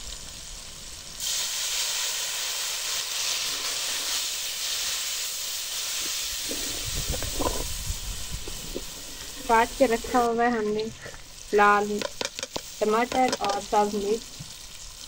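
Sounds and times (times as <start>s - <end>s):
water hissing in hot oil: 0.0s - 15.0s
ladle stirring in a pan: 12.0s - 13.6s.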